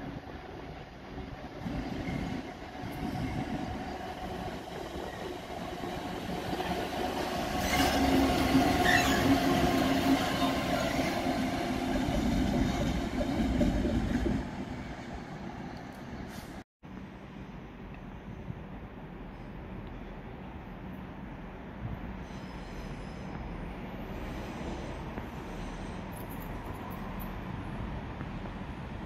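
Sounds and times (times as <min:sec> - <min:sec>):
diesel locomotive engine drone: 0:00.0 - 0:29.0
short high squeal: 0:08.8 - 0:09.4.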